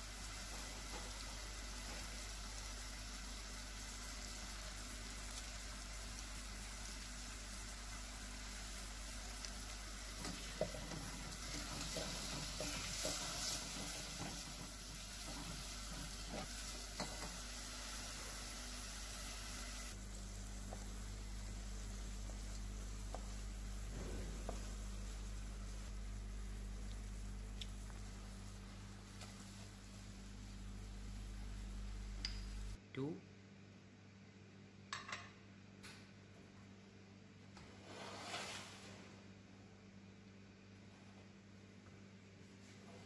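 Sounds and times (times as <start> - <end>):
apples sizzling in a pan: 0.0 - 32.8
stirring scraping against pan: 10.1 - 17.4.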